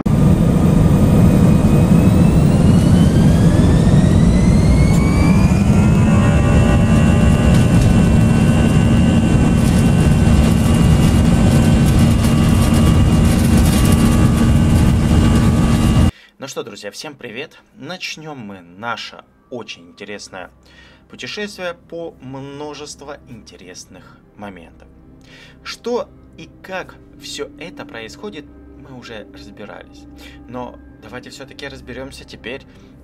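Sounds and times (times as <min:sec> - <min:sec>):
jet engine spooling up: 0:00.0 - 0:16.1.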